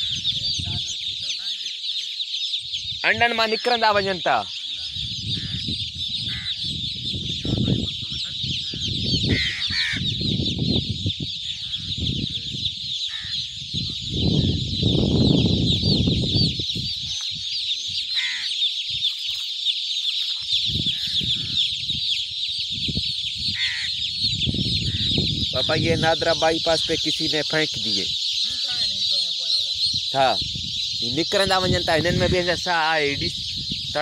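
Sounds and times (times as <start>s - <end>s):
chicks cheeping: 0.0s - 34.0s.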